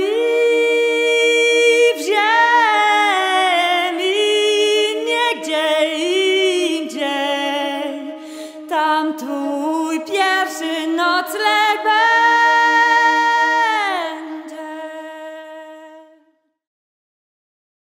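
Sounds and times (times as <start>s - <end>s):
woman singing unaccompanied: 0.0s - 16.2s.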